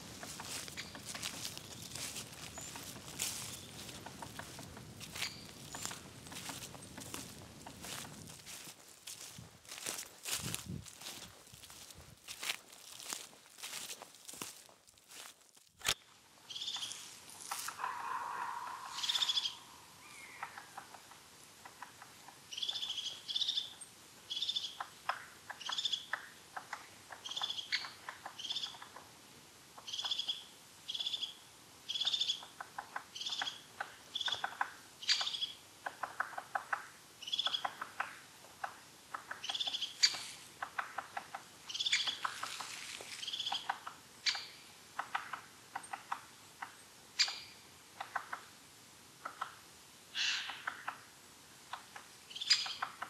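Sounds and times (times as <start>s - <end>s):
small birds calling: 0.0s - 29.1s, 29.8s - 48.5s, 50.2s - 51.1s, 51.7s - 53.0s
quiet ticking bird calls: 0.0s - 48.6s, 49.2s - 53.0s.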